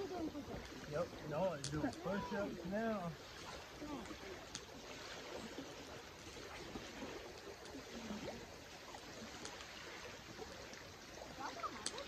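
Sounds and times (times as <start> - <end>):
faint distant voices: 0.0 - 5.7
faint ticks: 11.7 - 12.0.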